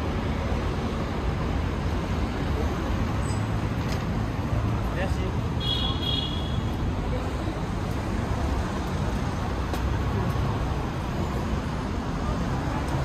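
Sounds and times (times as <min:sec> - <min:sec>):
city street traffic: 0:00.0 - 0:13.0.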